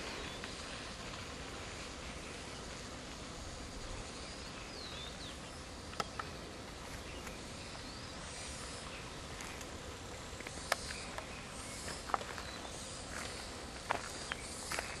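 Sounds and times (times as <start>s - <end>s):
steady hiss: 0.0s - 15.0s
sharp clicks: 5.9s - 6.3s.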